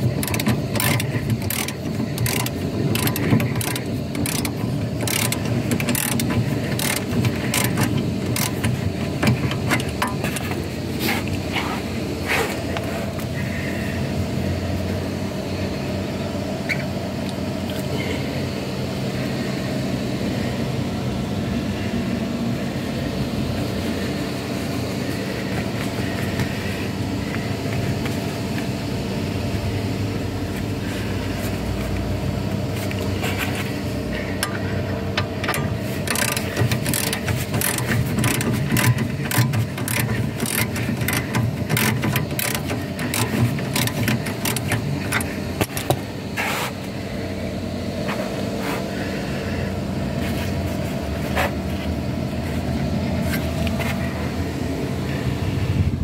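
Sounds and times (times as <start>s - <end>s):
sharp metallic clicks: 0.0s - 10.7s, 35.2s - 46.0s
steady mechanical hum: 0.0s - 56.0s.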